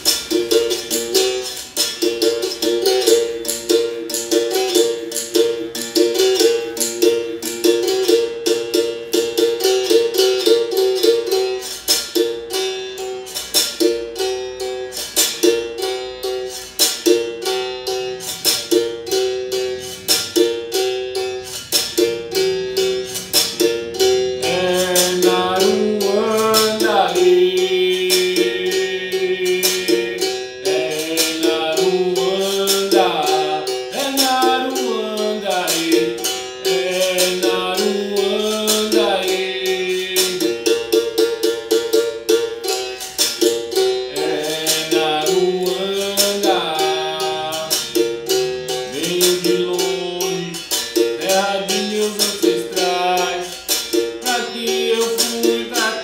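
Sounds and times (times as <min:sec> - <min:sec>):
man singing: 0:24.4 - 0:41.8, 0:44.1 - 0:56.0.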